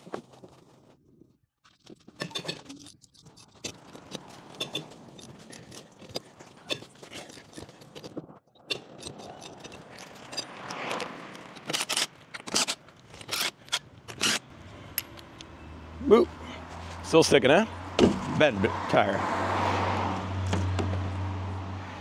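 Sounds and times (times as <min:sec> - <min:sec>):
wrench clinking on lug nuts: 0:02.2 - 0:08.1, 0:08.7 - 0:14.4.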